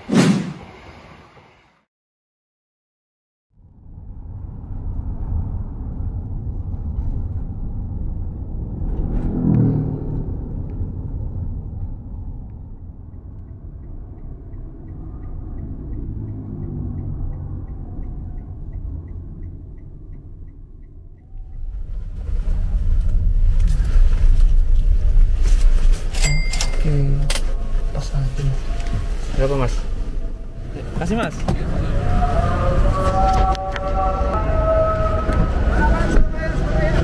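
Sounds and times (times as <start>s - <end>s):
car engine and road rumble: 3.5s - 37.0s
turn signal ticking: 10.2s - 23.3s.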